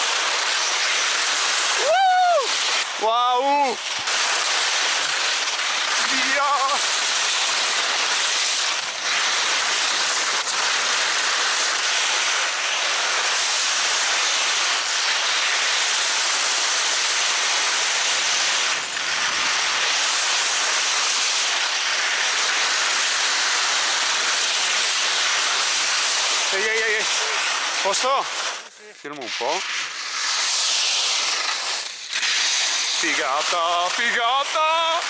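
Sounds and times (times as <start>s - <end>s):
steady loud hissing: 0.0s - 35.0s.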